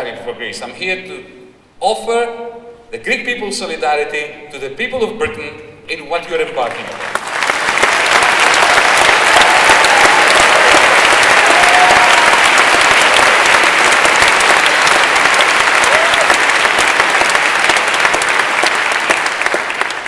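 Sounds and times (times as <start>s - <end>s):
large audience applauding: 6.7s - 20.0s.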